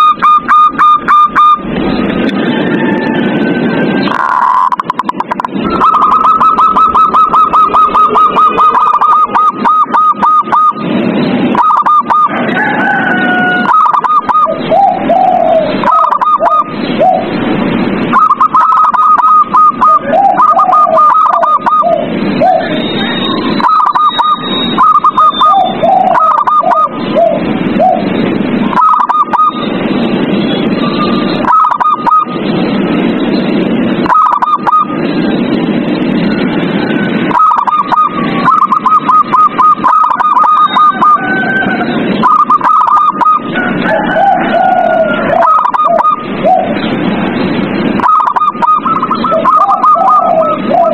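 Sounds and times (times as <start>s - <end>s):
doves cooing: 0.0s - 10.8s, 11.5s - 17.5s, 18.1s - 29.7s, 30.6s - 32.4s, 34.0s - 35.4s, 36.1s - 50.9s
steady noisy background: 0.0s - 50.9s.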